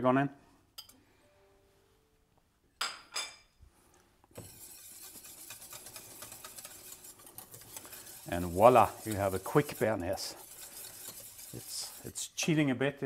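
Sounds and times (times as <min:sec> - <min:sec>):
whisk clinking on saucepan: 0:04.3 - 0:12.5
whisk scraping swish: 0:04.3 - 0:12.5.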